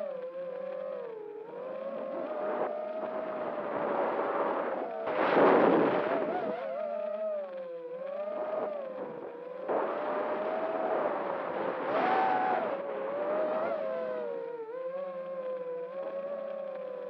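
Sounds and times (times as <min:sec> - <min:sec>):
drone motors whining: 0:00.0 - 0:17.0
rush of air and prop noise: 0:03.5 - 0:06.5.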